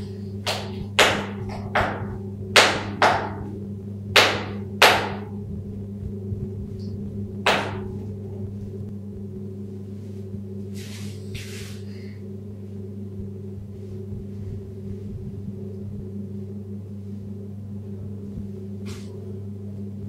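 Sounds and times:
steady low hum: 0.0 - 20.0
sharp knocks on tiles: 0.5 - 3.4, 7.5 - 7.9
soft rustles: 18.3 - 19.2.

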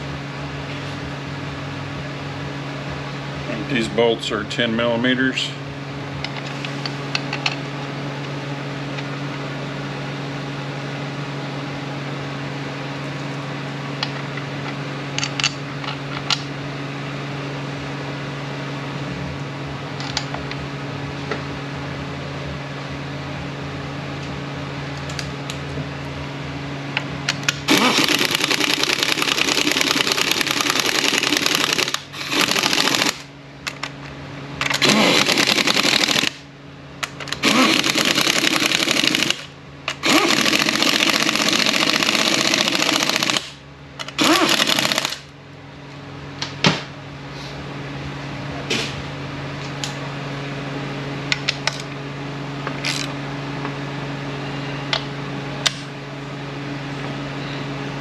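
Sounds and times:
steady shop hum: 0.0 - 58.0
pneumatic wrench bursts: 27.6 - 33.3, 34.6 - 36.4, 37.3 - 43.5, 44.1 - 45.2.

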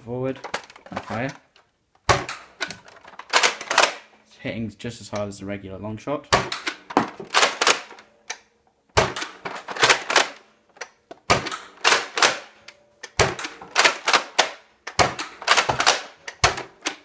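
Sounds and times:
toy blaster bolt clacking and firing: 6.5 - 8.4, 9.0 - 17.0.

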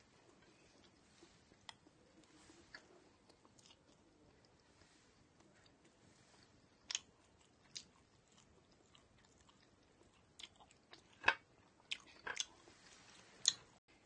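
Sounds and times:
person chewing with mouth clicks: 0.8 - 4.6, 6.8 - 12.6.

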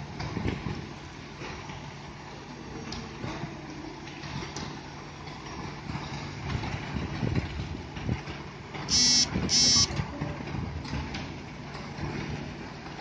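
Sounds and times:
diesel truck engines running: 8.9 - 10.0
truck beeps: 8.9 - 10.0.

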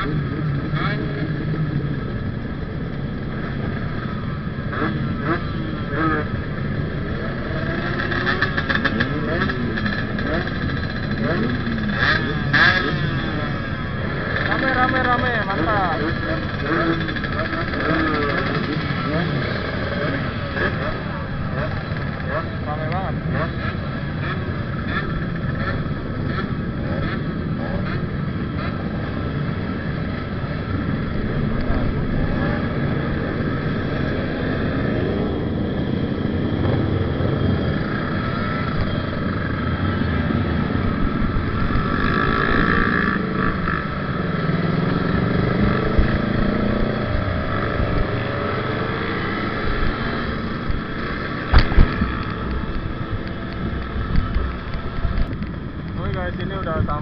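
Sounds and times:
two-stroke motorcycles revving: 0.0 - 57.0.

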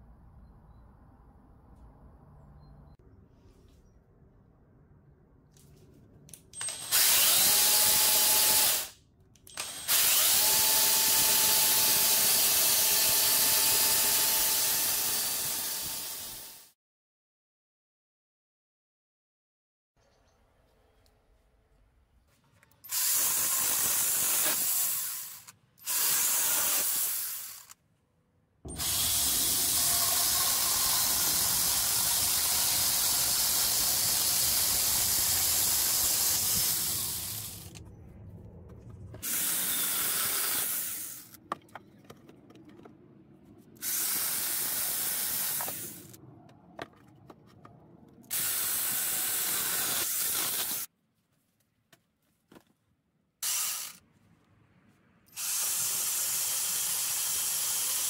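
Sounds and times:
cordless saw cutting wood: 9.6 - 16.7, 28.7 - 37.8, 39.2 - 41.4, 53.4 - 54.0, 55.4 - 58.0.

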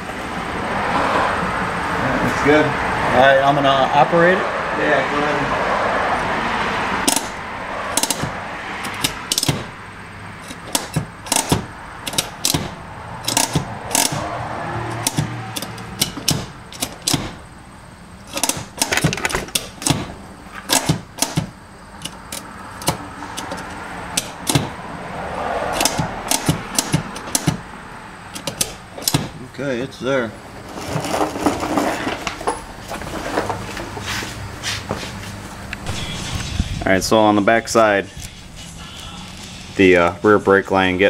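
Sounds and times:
parking brake ratchet clicking: 7.0 - 9.8, 10.4 - 14.3, 14.9 - 24.8, 25.7 - 27.7, 28.3 - 29.4.

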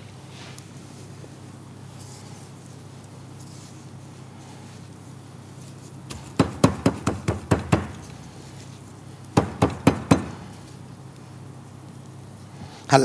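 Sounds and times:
rapid sharp knocks: 6.1 - 8.0, 9.4 - 10.4.

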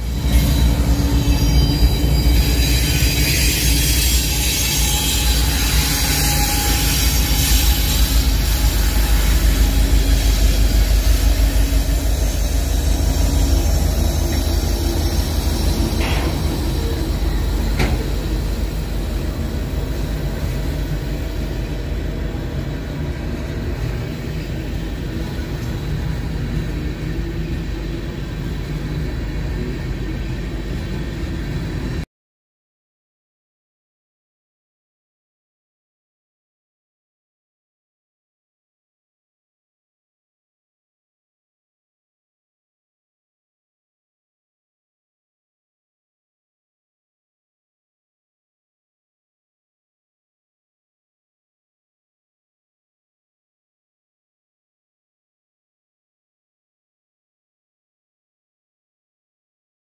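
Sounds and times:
locomotive engine drone: 0.0 - 32.0.

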